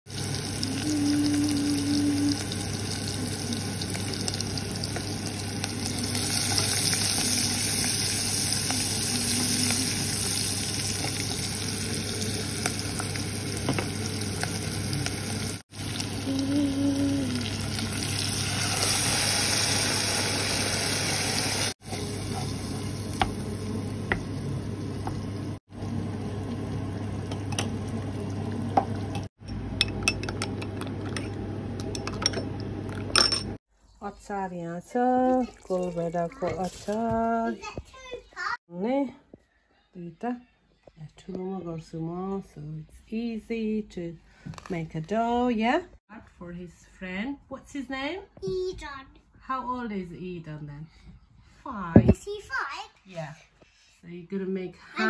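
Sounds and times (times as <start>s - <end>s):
onions and tomatoes sizzling in a pan: 0.1s - 29.2s.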